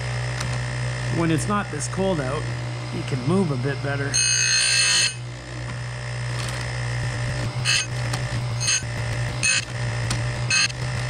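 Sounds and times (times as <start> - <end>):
chain grinder humming: 3.4 - 11.0
grinding wheel on chain tooth: 4.1 - 5.3, 6.4 - 11.0.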